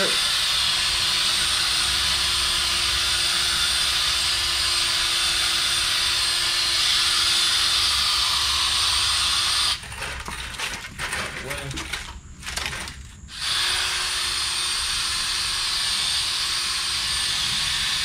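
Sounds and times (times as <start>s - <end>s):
drill spinning polishing pad: 0.0s - 9.8s, 13.3s - 18.0s.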